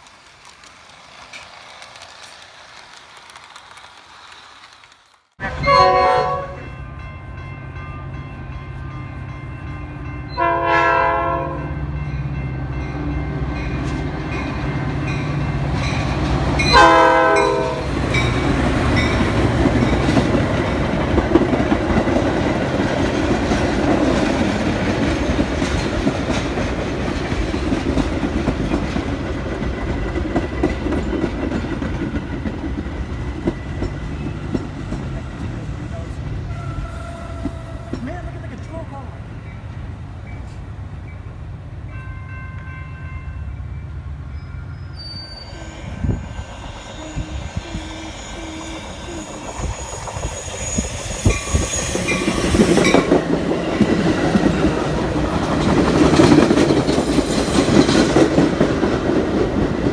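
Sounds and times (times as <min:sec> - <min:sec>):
train wheels clattering on rails: 0:00.0 - 0:05.4, 0:12.7 - 0:38.9, 0:48.6 - 0:59.9
train horn blasts: 0:05.4 - 0:08.9, 0:09.9 - 0:12.0, 0:16.7 - 0:18.0, 0:36.5 - 0:38.0.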